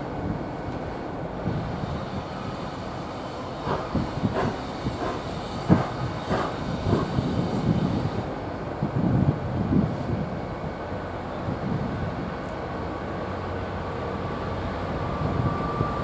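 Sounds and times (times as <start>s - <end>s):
train rumbling past: 0.0s - 16.0s
wheels clacking over rail joints: 3.6s - 7.4s.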